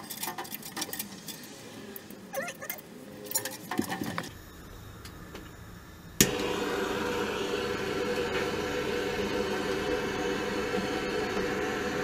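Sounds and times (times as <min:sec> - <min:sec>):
gas torch burning: 0:04.2 - 0:12.0.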